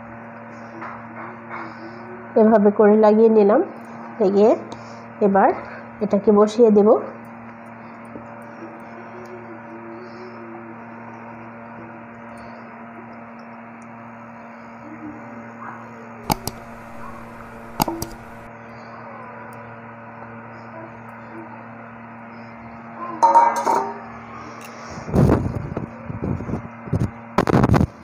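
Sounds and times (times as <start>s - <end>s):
low electrical hum: 0.0s - 28.0s
sharp clicks: 16.3s - 18.5s
metal bowl clinking and scraping: 23.2s - 24.0s.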